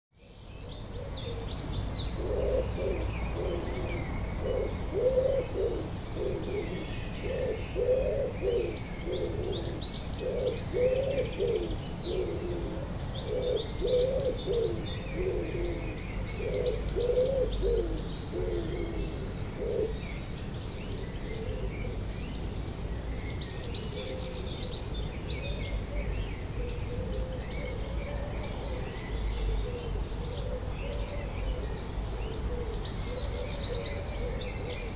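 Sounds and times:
songbirds chirping and trilling: 0.1s - 34.9s
pigeon cooing: 2.2s - 20.0s.

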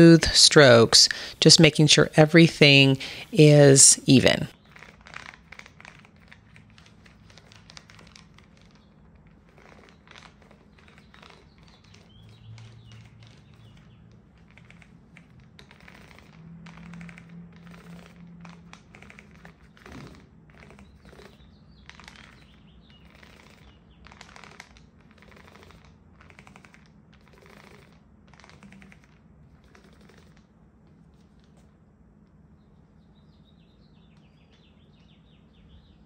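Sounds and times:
paint roller crackling: 4.5s - 30.4s.

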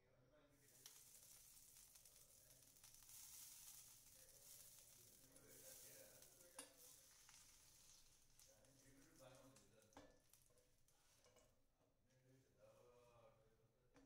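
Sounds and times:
butter sizzling: 0.5s - 11.4s.

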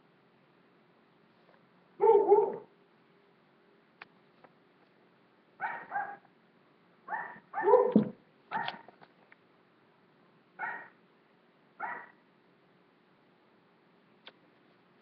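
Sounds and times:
dog barking: 2.0s - 2.7s, 5.6s - 6.3s, 7.1s - 8.9s, 10.6s - 11.0s, 11.8s - 12.2s.

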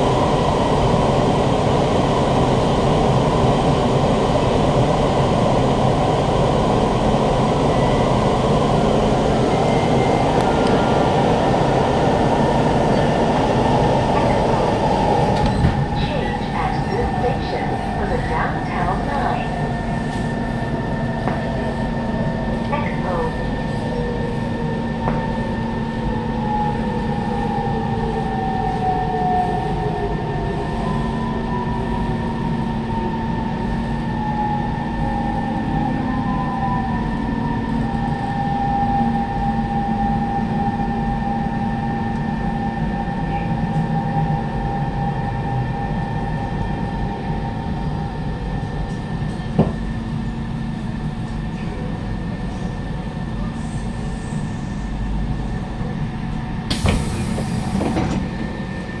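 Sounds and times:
train running rumble: 0.0s - 27.7s, 41.6s - 59.0s.

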